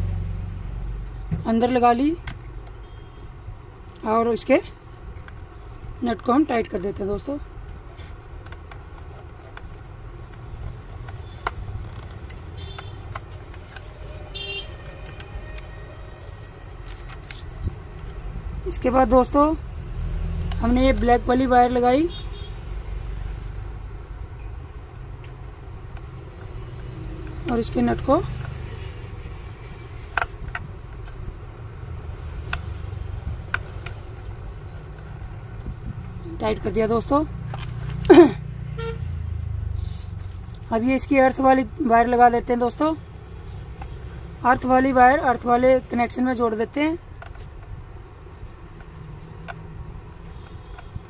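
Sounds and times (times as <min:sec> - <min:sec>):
road traffic rumble: 0:00.0 - 0:51.0
vehicle horn toot: 0:14.1 - 0:16.0, 0:22.1 - 0:22.6, 0:38.8 - 0:39.0.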